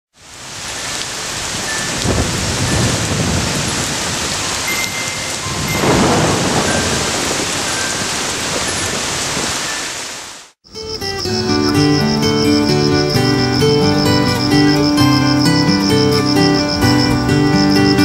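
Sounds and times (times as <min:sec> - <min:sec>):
heavy rain falling: 0:00.2 - 0:10.6, 0:11.8 - 0:18.0
low rolls of thunder: 0:02.0 - 0:04.5, 0:05.3 - 0:08.9.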